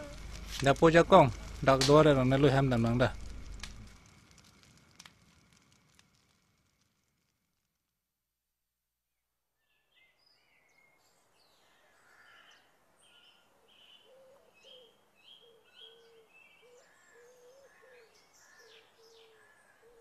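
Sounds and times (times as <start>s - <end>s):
low repeated bird call: 9.6s - 20.0s.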